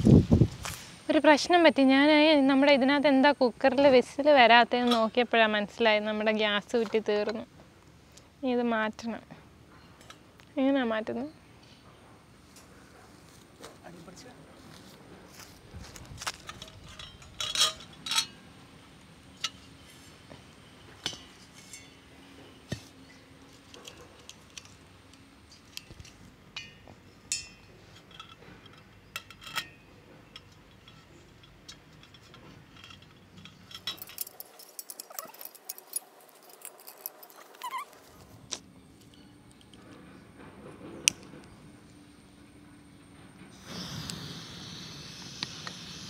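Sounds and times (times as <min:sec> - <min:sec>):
metal clanks: 0:16.3 - 0:18.5, 0:21.0 - 0:24.8, 0:26.5 - 0:37.8
metal clicks and clinks: 0:16.4 - 0:18.4, 0:23.7 - 0:38.0.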